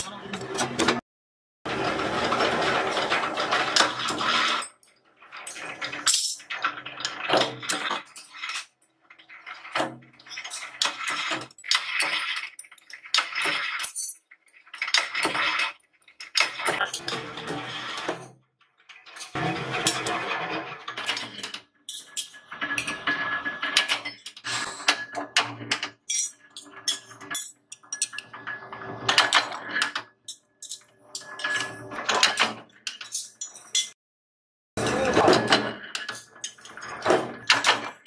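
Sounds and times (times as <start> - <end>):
metal plates clinking: 20.9 - 34.0.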